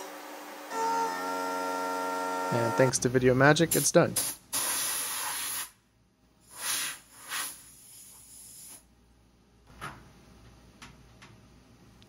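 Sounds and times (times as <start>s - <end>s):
compressed air blow gun hissing: 6.4s - 8.8s.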